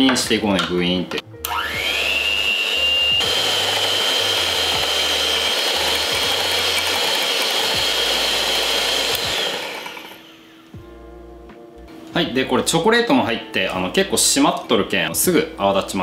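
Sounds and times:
electric hand mixer whining: 1.4s - 10.7s.

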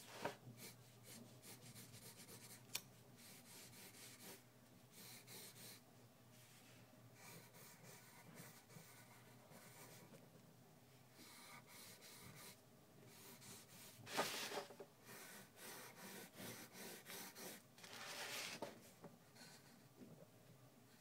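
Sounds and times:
pencil sketching on paper: 0.6s - 2.6s, 3.2s - 5.8s, 7.2s - 10.2s, 11.2s - 18.6s.

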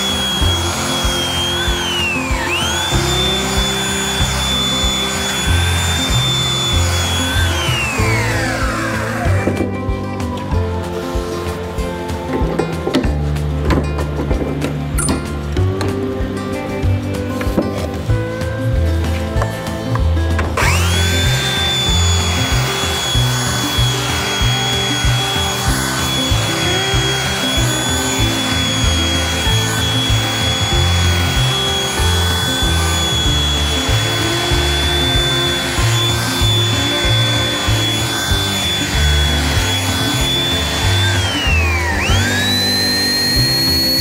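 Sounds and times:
power tool whining: 0.0s - 13.6s, 14.9s - 44.0s
background music with bass line: 0.0s - 44.0s.

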